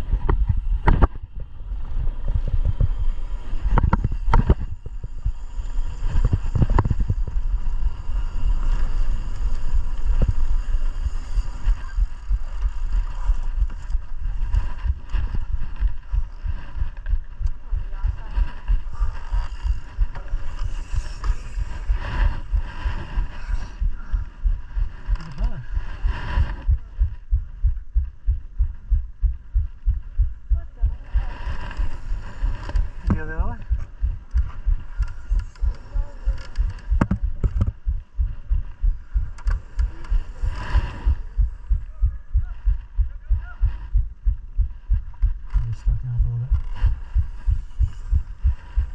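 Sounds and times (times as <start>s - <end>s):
steady low thumping: 0.0s - 7.9s, 9.0s - 48.9s
wind rushing over microphone: 0.0s - 48.9s.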